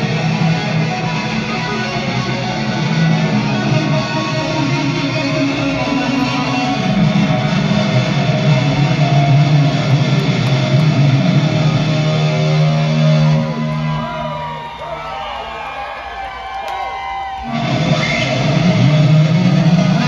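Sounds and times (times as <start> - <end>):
live rock band playing: 0.0 - 14.8, 17.4 - 20.0
electric guitar: 0.0 - 15.2, 16.0 - 20.0.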